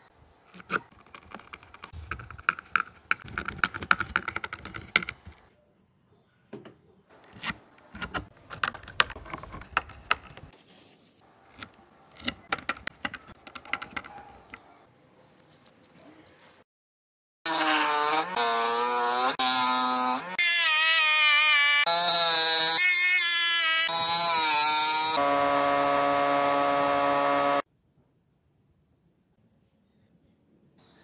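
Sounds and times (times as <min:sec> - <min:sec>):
screwdriver clicking and creaking: 0:00.5 - 0:05.4, 0:07.2 - 0:10.5, 0:11.5 - 0:14.7.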